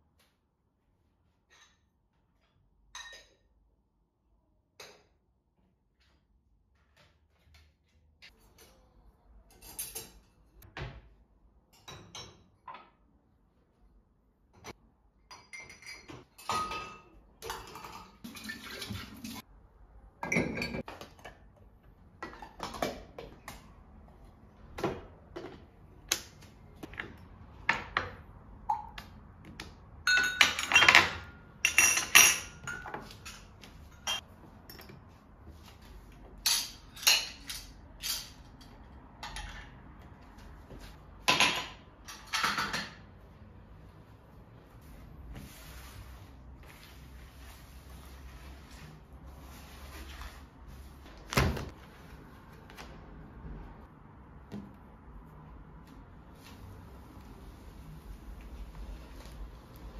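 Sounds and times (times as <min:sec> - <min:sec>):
dishes and glassware clinking: 0:02.9 - 0:03.6, 0:09.5 - 0:10.6, 0:11.7 - 0:13.0, 0:15.2 - 0:18.7, 0:20.2 - 0:21.4, 0:30.0 - 0:35.0, 0:36.4 - 0:39.8.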